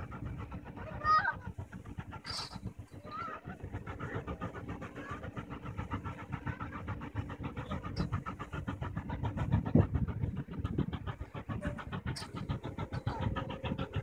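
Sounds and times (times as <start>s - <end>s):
steam locomotive pulsing rumble: 0.0s - 14.0s.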